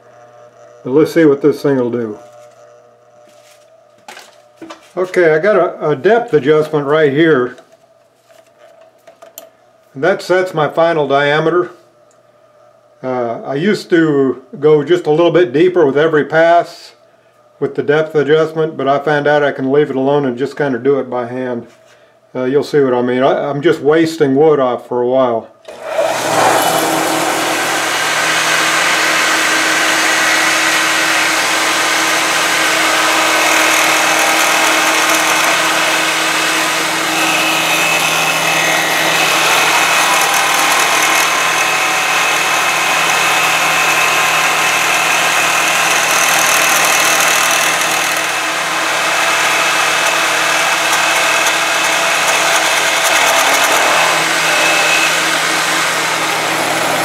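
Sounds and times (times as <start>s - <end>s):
lathe motor hum: 0.0s - 5.5s, 25.7s - 57.0s
lathe cutter cutting wood: 25.7s - 57.0s.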